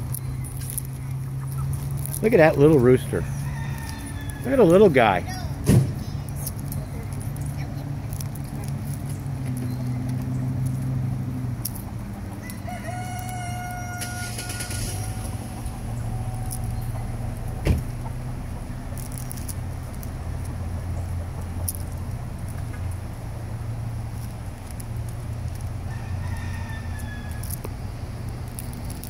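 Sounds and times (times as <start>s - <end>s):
steady low hum: 0.0s - 29.0s
rooster crowing: 3.1s - 4.8s, 12.4s - 17.4s, 25.9s - 27.6s.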